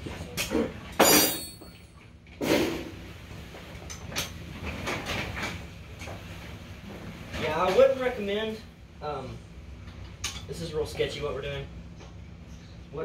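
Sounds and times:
metallic clank with ringing squeal: 0:01.0 - 0:01.9.

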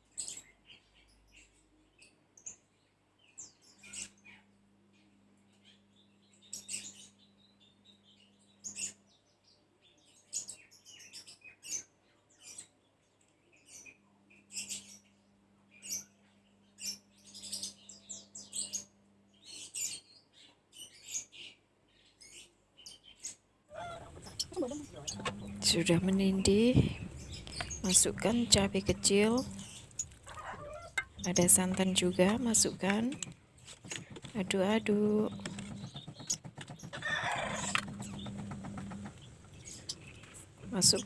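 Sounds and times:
faint low hum: 0:23.7 - 0:36.3.

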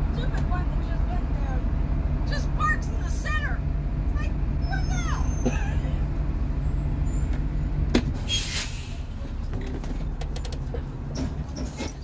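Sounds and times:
bus engine idling: 0:00.0 - 0:12.0
air brakes hissing: 0:08.2 - 0:09.4.

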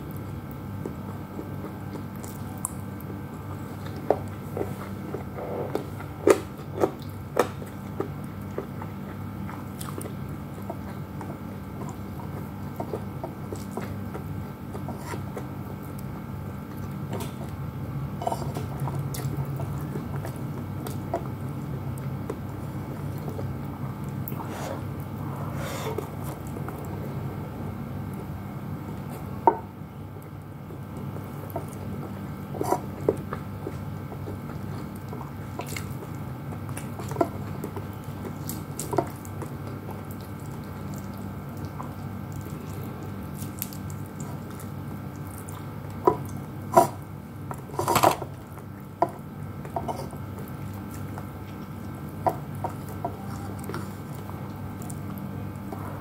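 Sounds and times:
low steady hum: 0:00.0 - 0:56.0
wet chewing and lip smacks: 0:00.1 - 0:17.6, 0:30.2 - 0:47.1.

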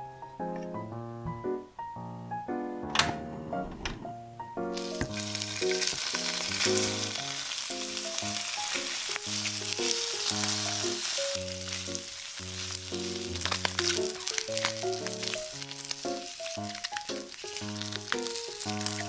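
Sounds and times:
light background music: 0:00.0 - 0:19.0
meat sizzling in oil: 0:04.7 - 0:19.0.

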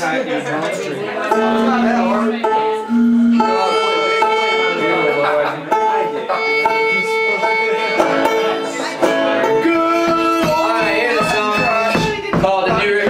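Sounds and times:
picked banjo: 0:00.0 - 0:13.0
bowed fiddle: 0:00.4 - 0:13.0
plucked upright bass: 0:01.2 - 0:13.0.

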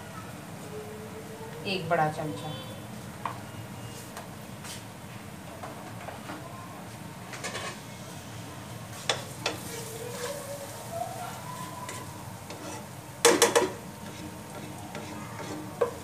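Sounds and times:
light sizzle: 0:01.4 - 0:16.0
spatula scraping pan: 0:07.3 - 0:07.8, 0:08.9 - 0:10.5, 0:11.8 - 0:16.0.

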